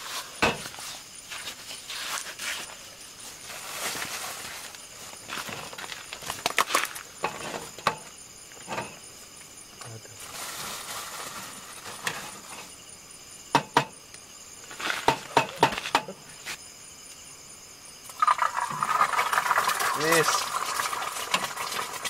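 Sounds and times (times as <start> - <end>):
plastic bag rustling: 3.3 - 7.0, 10.2 - 12.5.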